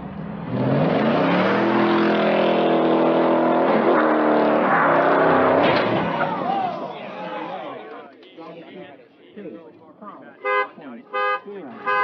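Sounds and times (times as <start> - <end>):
car engine revving hard: 0.0 - 6.2.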